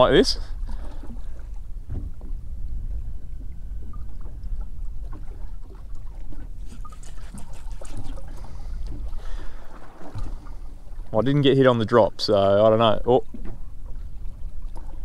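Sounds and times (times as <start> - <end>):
steady low rumble: 0.0 - 6.7
water lapping against boat hull: 0.0 - 15.0
light splashes and ticks: 0.6 - 11.2, 13.0 - 15.0.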